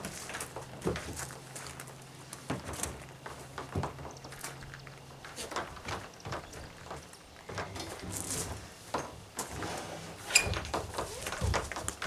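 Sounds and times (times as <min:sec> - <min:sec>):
plastic kayak scraping on metal rack: 0:09.4 - 0:11.2.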